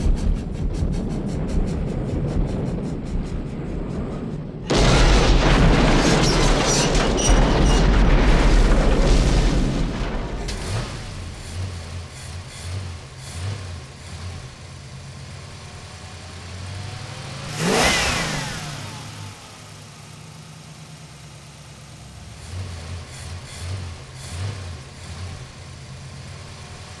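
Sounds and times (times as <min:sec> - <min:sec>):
explosion with deep rumble: 0:00.0 - 0:12.1
car engine revving: 0:10.0 - 0:20.9, 0:21.6 - 0:27.0.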